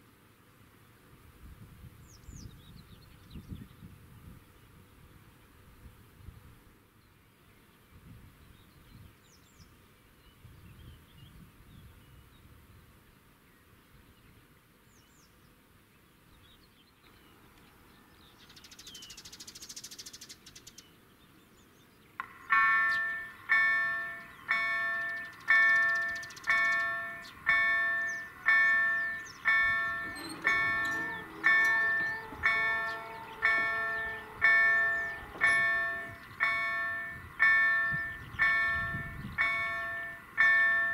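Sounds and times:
faint birdsong: 1.8s - 6.1s, 6.7s - 40.9s
level crossing warning bell: 22.2s - 40.9s.

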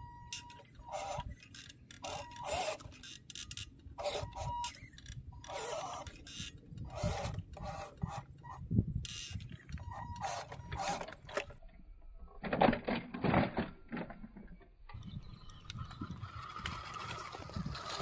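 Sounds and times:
rc truck motor grinding: 0.4s - 11.6s, 14.9s - 18.0s
rc truck tumbling clatter: 0.9s - 8.5s, 9.2s - 11.7s, 12.3s - 18.0s
rc car motor whining: 2.0s - 3.1s, 4.0s - 8.3s, 15.0s - 18.0s.

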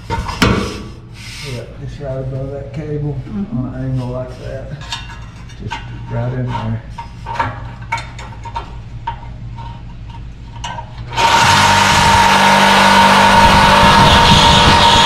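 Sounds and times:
reciprocating saw cutting steel pipe: 11.1s - 15.0s.

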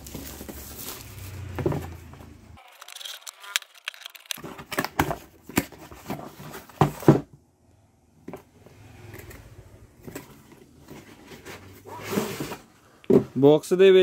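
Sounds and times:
cardboard box scraping and knocking: 4.4s - 7.3s, 10.8s - 13.3s.

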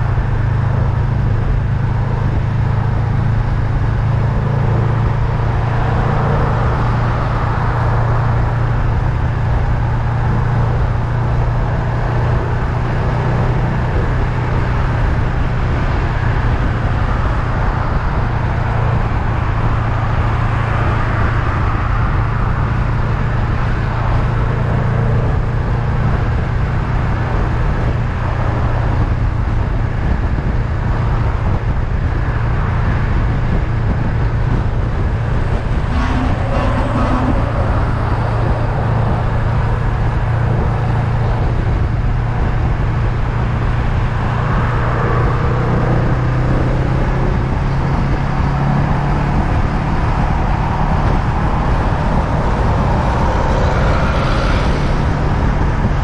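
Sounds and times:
wind and road noise: 0.0s - 56.0s.

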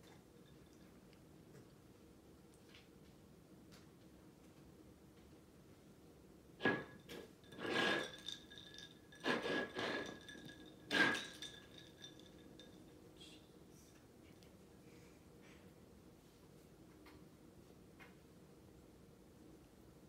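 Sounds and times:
cat pawing clinking ceramic bowl: 6.6s - 13.0s.

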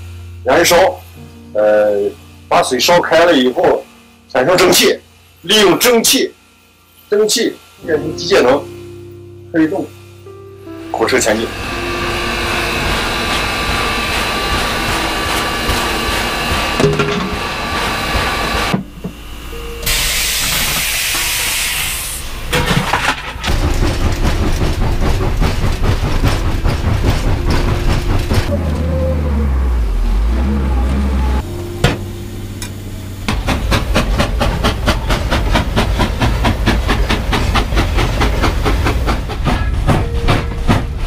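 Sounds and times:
steam locomotive hissing: 0.0s - 41.0s
rushing hiss of steam: 7.0s - 22.5s, 31.5s - 40.2s
dense rattling: 22.9s - 28.5s
deep engine rumble: 23.5s - 41.0s.

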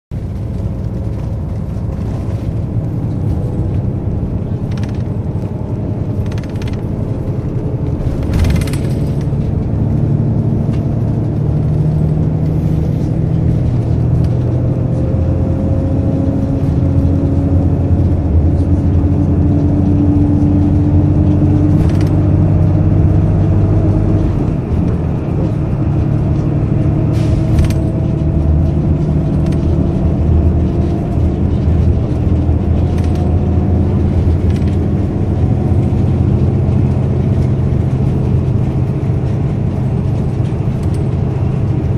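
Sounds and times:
road and engine rumble: 0.1s - 41.9s.

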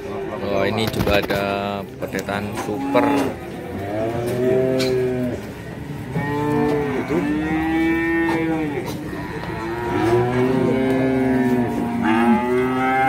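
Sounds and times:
calves mooing: 2.6s - 13.0s.

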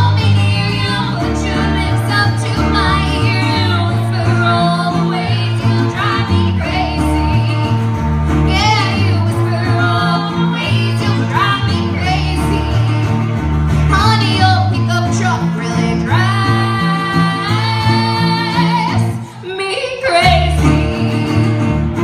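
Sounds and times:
guitar: 0.0s - 22.0s
woman singing country song: 0.0s - 22.0s.

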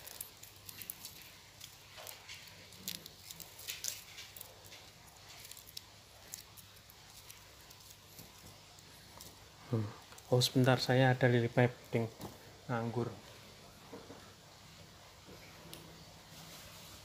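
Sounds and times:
wire brush ticks and rustles: 0.0s - 9.4s.

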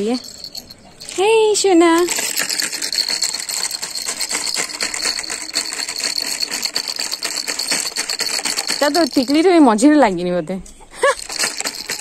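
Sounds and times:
pens rattling in plastic holder: 2.0s - 9.6s, 11.2s - 12.0s.

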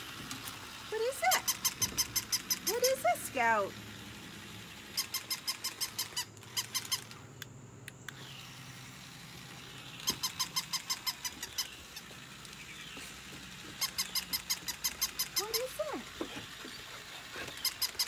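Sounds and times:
toy puppy electronic yips: 1.0s - 3.5s, 4.9s - 7.2s, 10.0s - 12.2s, 13.8s - 18.0s.

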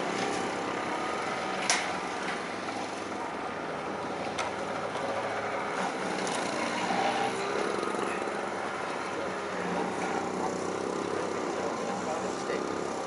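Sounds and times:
engine running steadily: 0.0s - 13.0s.

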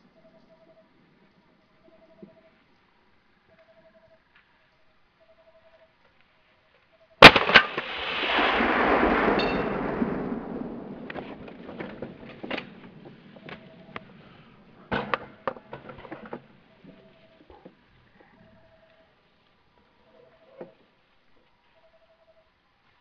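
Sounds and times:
rifle shot: 7.2s - 12.9s.

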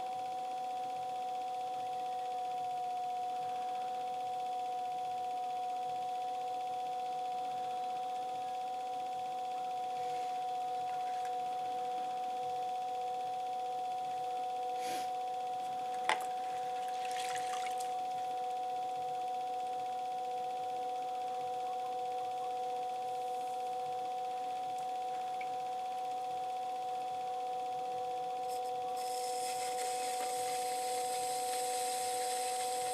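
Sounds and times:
electric motor high whine: 0.0s - 32.9s
wet splashy noises: 16.9s - 17.9s.

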